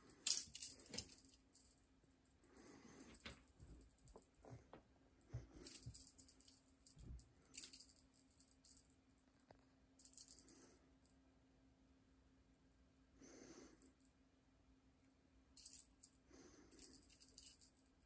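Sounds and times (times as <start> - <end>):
small bell jingling: 5.6 - 9.0, 16.8 - 17.9.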